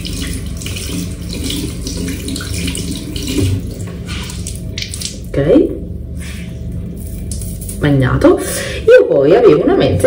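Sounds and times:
tap water running into sink: 0.0s - 5.3s.

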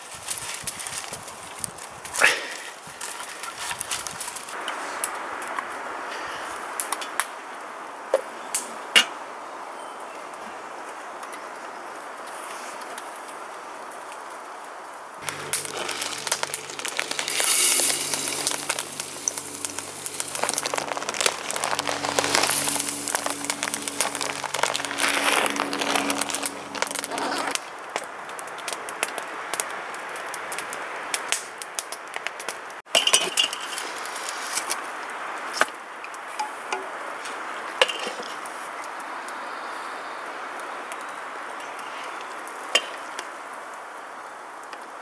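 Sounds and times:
cup scooping oats: 15.2s - 27.6s
oats pouring into metal pot: 15.2s - 27.6s.

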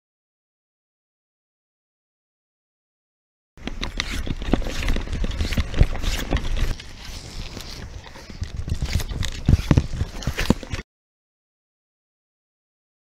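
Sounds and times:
wind rumbling on microphone: 3.6s - 10.8s.

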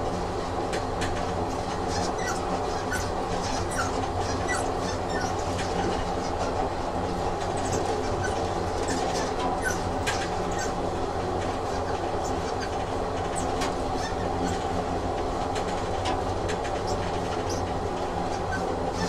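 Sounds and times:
train carriage rumbling: 0.0s - 19.0s
wheels clicking and squeaking: 1.8s - 6.7s, 7.4s - 10.8s, 11.6s - 14.8s, 15.6s - 19.0s.

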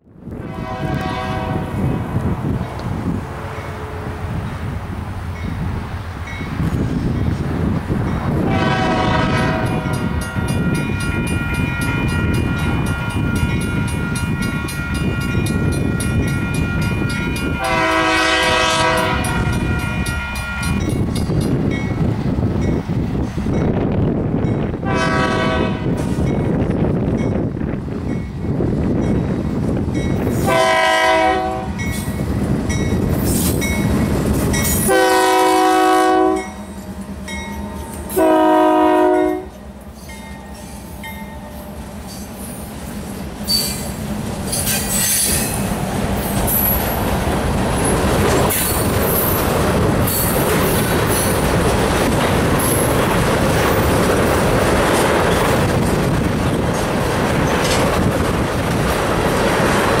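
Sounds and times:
train air horn blasts: 0.4s - 2.2s, 8.4s - 10.2s, 16.9s - 20.7s, 24.8s - 26.1s, 30.4s - 32.0s, 34.7s - 36.7s, 37.7s - 39.6s
train wheels clattering: 6.5s - 23.7s, 31.8s - 35.4s, 36.4s - 60.0s.

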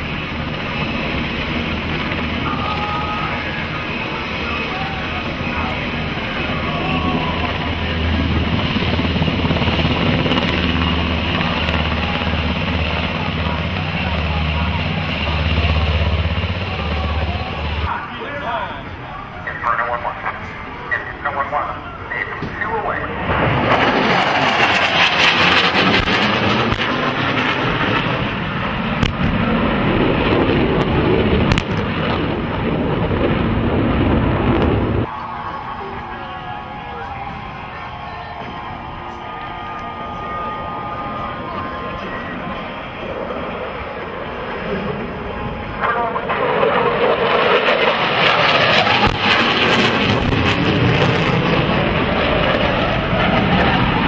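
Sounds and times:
helicopter rotors beating: 0.0s - 54.0s
jet noise: 0.0s - 54.0s
turbine engine noise: 0.0s - 54.0s
pyrotechnic booms: 22.4s - 35.1s, 45.8s - 54.0s
sharp cracks: 23.6s - 27.2s, 29.0s - 29.5s, 30.3s - 32.3s, 46.6s - 51.5s.

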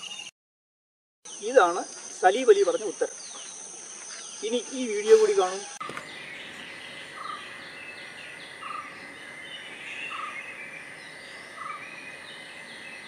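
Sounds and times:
high bird chirps: 5.3s - 13.0s
faint high hum: 5.8s - 13.0s.

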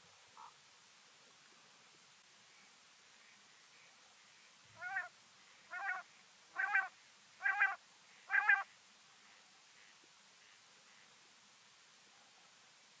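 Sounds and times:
quail calling: 4.8s - 5.1s, 5.7s - 8.7s.

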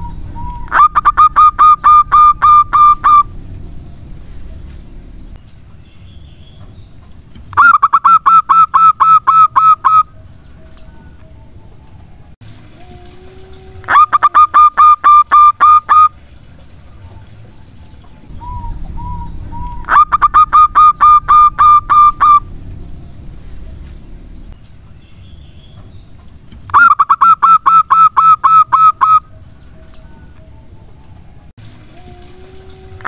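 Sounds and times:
dove cooing: 0.0s - 3.3s, 7.6s - 10.2s, 12.8s - 16.2s, 18.3s - 22.5s.

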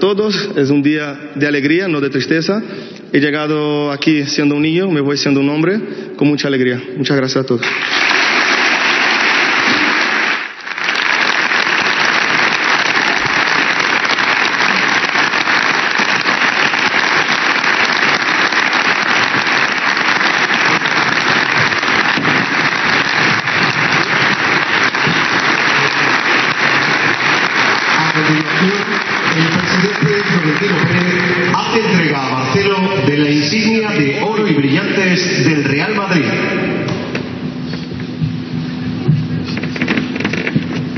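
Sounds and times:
audience applauding: 7.6s - 32.9s.

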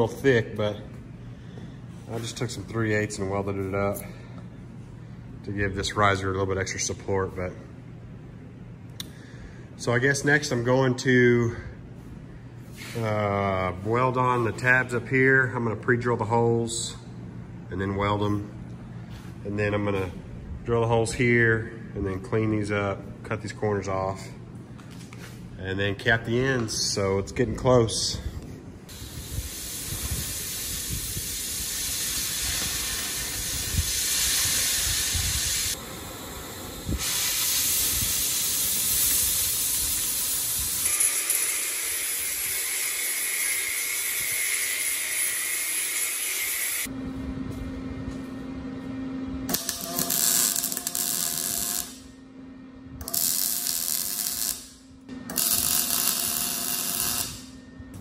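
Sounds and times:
welder crackling: 28.9s - 35.9s, 36.9s - 46.9s, 49.5s - 52.1s, 53.0s - 57.6s
angle grinder grinding steel: 40.8s - 46.9s.

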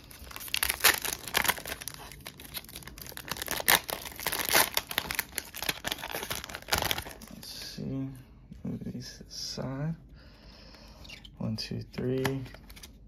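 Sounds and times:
foil wrappers and cards crinkling: 0.0s - 7.4s, 11.9s - 13.0s.

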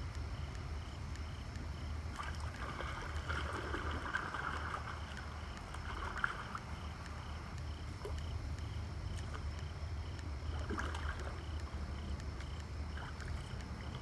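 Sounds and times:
steady low rumble: 0.0s - 14.0s
water splashing: 2.1s - 7.3s, 10.3s - 14.0s.

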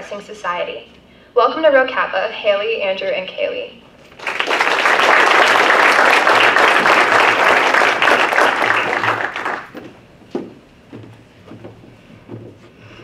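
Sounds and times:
audience applauding: 4.1s - 9.8s
footsteps on wooden stage: 8.8s - 13.0s.

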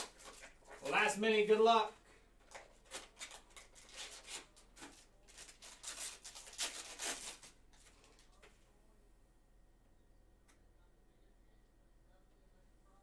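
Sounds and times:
cardboard and foil crinkling: 0.0s - 1.1s, 2.5s - 8.4s.

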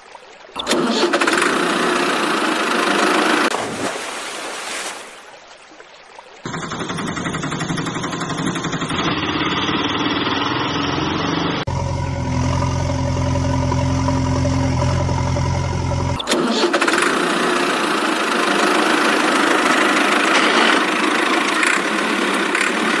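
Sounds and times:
rough noisy engine running: 0.6s - 3.5s, 6.5s - 23.0s
small engine puttering: 0.6s - 3.5s, 6.5s - 23.0s
deep engine drone: 6.5s - 23.0s.

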